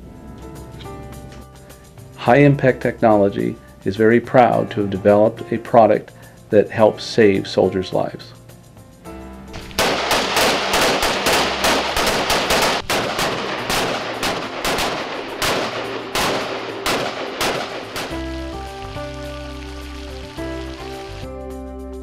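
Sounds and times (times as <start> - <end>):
rapid gunfire: 9.8 - 18.3.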